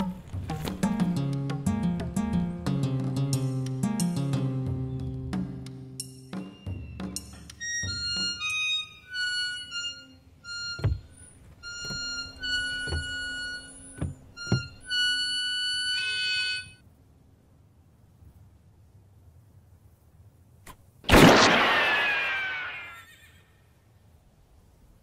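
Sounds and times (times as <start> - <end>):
harmonica playing: 7.4 - 16.8
low thumps: 10.6 - 15.2.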